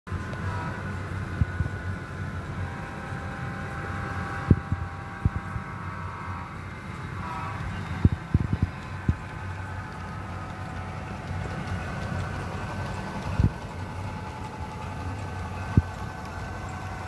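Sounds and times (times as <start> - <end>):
model train motor hum: 0.1 - 17.0
wheels clicking over rail joints: 6.5 - 17.0.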